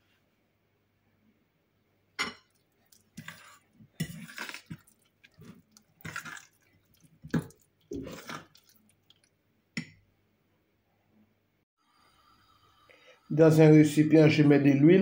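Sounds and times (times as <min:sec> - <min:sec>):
batter stirred in glass bowl: 0:02.5 - 0:09.3.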